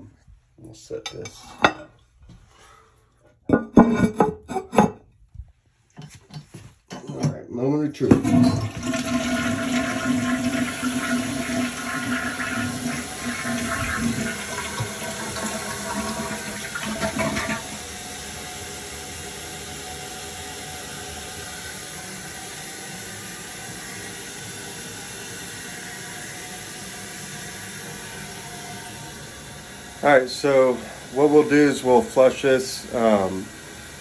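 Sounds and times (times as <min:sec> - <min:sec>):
toilet flushing rush of water: 0:08.0 - 0:34.0.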